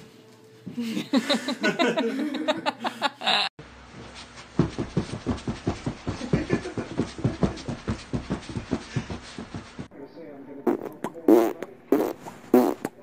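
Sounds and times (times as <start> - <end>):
man laughing heartily: 0.8 - 3.5, 6.1 - 7.9.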